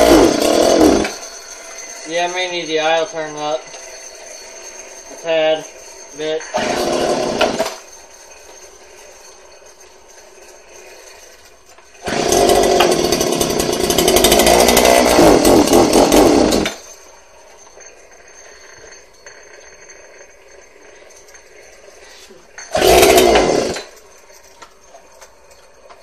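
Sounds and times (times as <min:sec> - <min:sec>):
chainsaw idling and revving: 0:00.0 - 0:01.3, 0:06.4 - 0:07.8, 0:12.0 - 0:17.0, 0:22.6 - 0:24.0.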